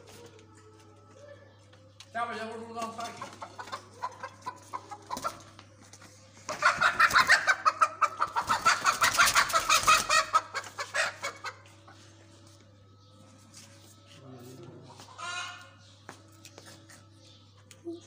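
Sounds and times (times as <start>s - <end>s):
hen squawking frantically: 6.6s - 11.6s.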